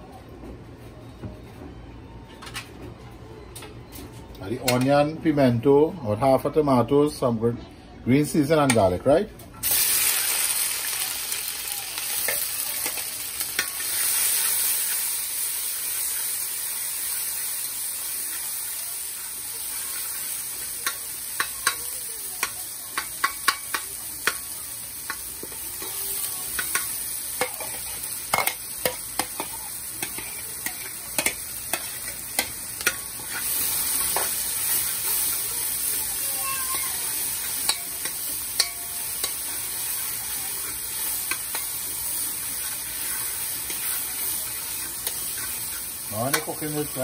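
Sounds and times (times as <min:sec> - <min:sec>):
vegetables sizzling in hot oil: 0:09.6 - 0:47.0
spoon striking and scraping pot: 0:22.4 - 0:24.4, 0:26.6 - 0:34.8, 0:37.4 - 0:39.6, 0:40.6 - 0:41.8, 0:42.6 - 0:46.8.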